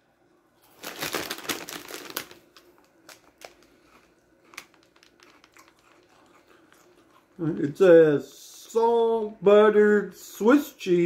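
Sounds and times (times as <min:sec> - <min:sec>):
plastic bag crinkling: 0:00.6 - 0:07.3.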